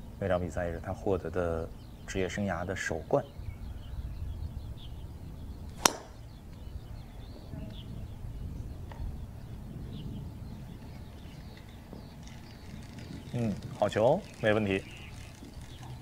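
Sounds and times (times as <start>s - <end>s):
outdoor background noise: 0.0s - 16.0s
golf club striking ball: 5.7s - 6.4s.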